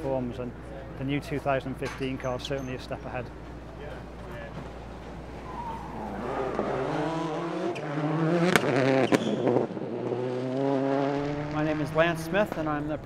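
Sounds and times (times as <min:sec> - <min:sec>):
car engine revving: 0:03.6 - 0:13.0.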